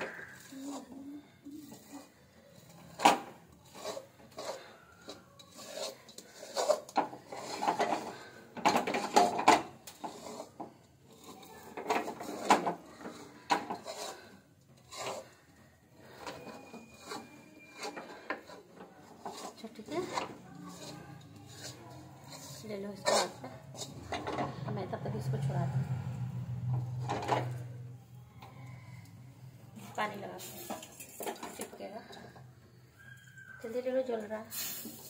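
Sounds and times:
spatula scraping a metal pan: 0:00.0 - 0:27.8.

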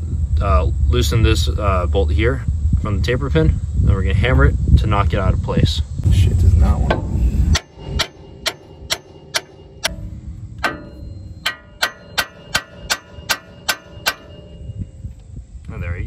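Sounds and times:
hammer striking metal: 0:06.9 - 0:15.1.

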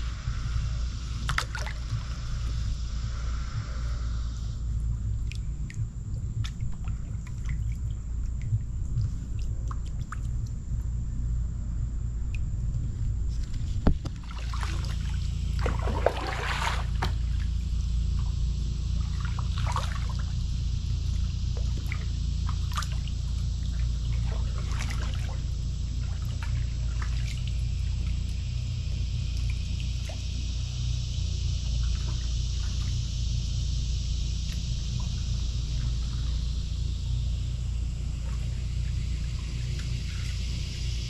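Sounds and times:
steady low rumble: 0:00.0 - 0:41.0
paddle splashing into water: 0:13.8 - 0:17.5, 0:24.1 - 0:27.5.

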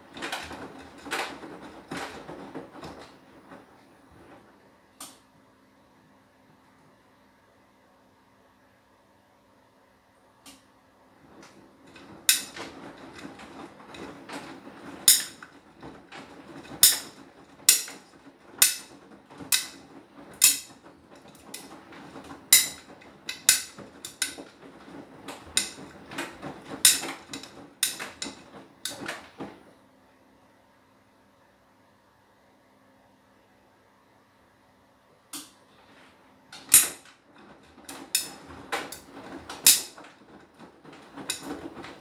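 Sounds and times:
laundry tumbling with clicks: 0:00.0 - 0:04.9, 0:11.0 - 0:29.9, 0:35.3 - 0:42.0
washing machine drum turning: 0:00.0 - 0:05.2, 0:10.5 - 0:29.8, 0:35.3 - 0:42.0.

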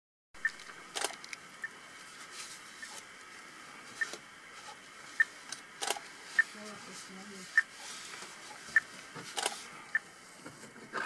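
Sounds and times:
sharp clicks: 0:00.4 - 0:01.4, 0:05.5 - 0:06.5.

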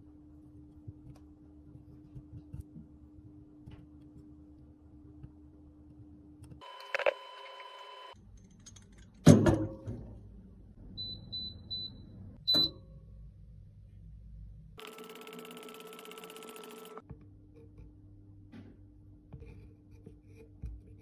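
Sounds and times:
appliance control panel beeps: 0:11.0 - 0:12.9.

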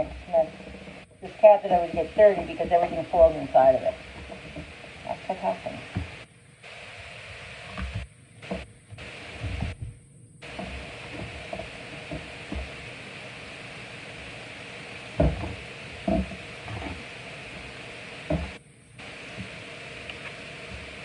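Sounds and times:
steady hiss: 0:00.0 - 0:21.0
louder thumps: 0:15.1 - 0:18.6.

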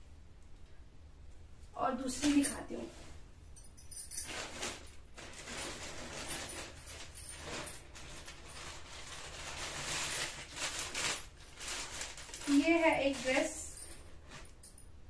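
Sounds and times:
cloth rustling: 0:03.8 - 0:14.8
plastic bag crinkling: 0:04.2 - 0:14.8.

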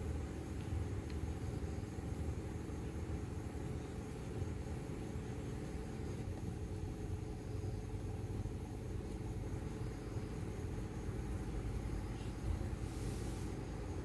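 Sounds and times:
short hiss: 0:12.8 - 0:13.7.

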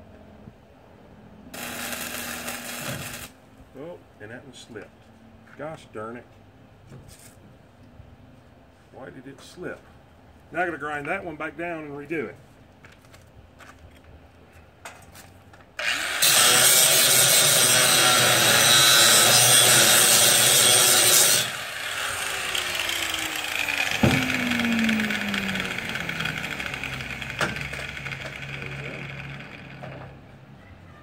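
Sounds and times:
angle grinder grinding metal: 0:01.6 - 0:03.3, 0:15.8 - 0:30.0
sharp knock: 0:23.9 - 0:24.4.

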